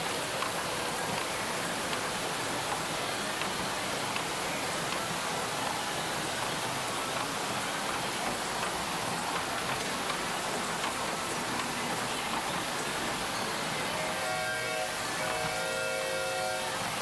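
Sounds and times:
small train rushing noise: 0.0s - 17.0s.

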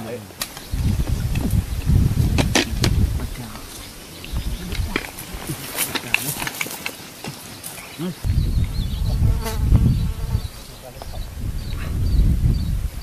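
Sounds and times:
low rumbling: 0.6s - 5.8s, 8.1s - 13.0s
insect buzzing: 8.0s - 12.9s.

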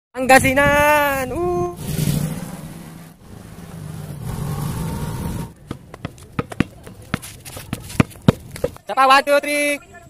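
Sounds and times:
basketball bouncing on concrete: 5.6s - 8.8s.

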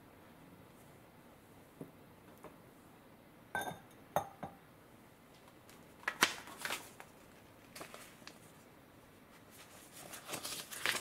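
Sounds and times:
ceramic lid clinking on pot: 3.6s - 4.6s.

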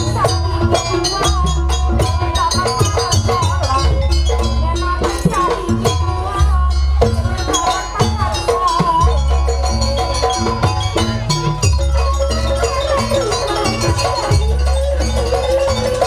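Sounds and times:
steady drumming: 0.0s - 16.0s
wavering melodic line: 6.8s - 16.0s.

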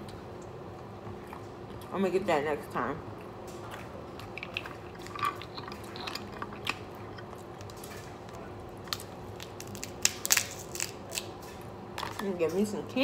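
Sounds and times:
crab shells cracking: 4.1s - 11.4s.

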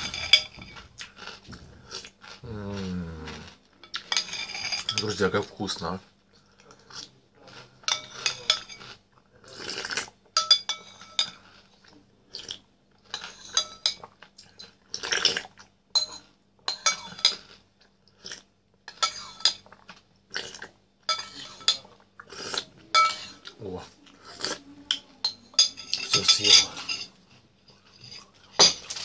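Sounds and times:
eating cereal in milk: 0.0s - 29.0s
spoon clinking on ceramic bowl: 10.4s - 11.4s, 15.9s - 17.4s, 21.1s - 21.8s, 22.9s - 23.4s, 25.2s - 27.1s.

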